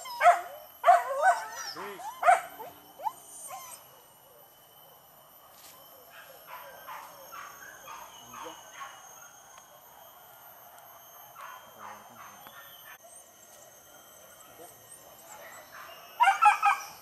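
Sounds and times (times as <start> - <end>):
dogs yelping: 0.0 - 4.0, 15.3 - 17.0.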